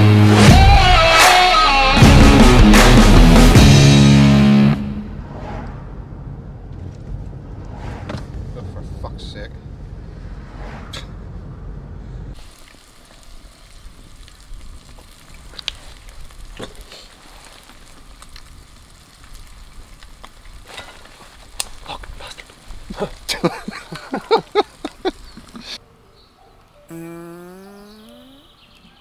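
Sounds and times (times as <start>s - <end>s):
campfire crackling and popping: 12.4s - 25.8s.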